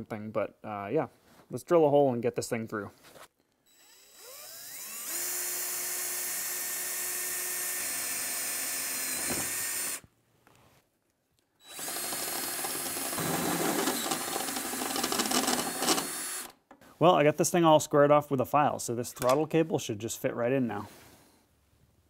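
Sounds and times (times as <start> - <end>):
cordless drill drilling through metal: 3.7 - 10.0, 11.6 - 16.6.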